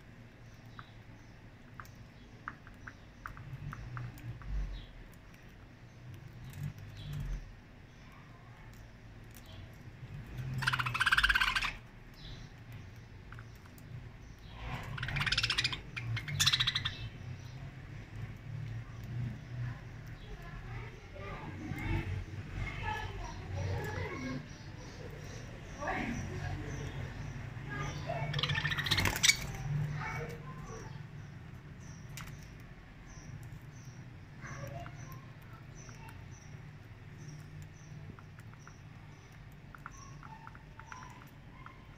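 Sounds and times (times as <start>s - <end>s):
birds pecking seed clicks: 0.0s - 41.9s
budgerigars chattering: 10.5s - 11.8s, 14.5s - 17.2s, 23.7s - 31.0s.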